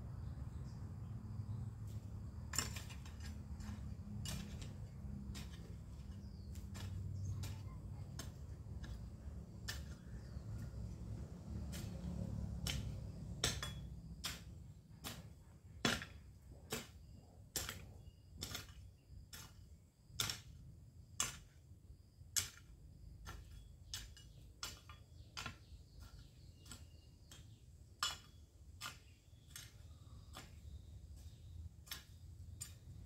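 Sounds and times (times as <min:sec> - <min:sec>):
hoe chopping into dry ground: 0:02.5 - 0:07.6.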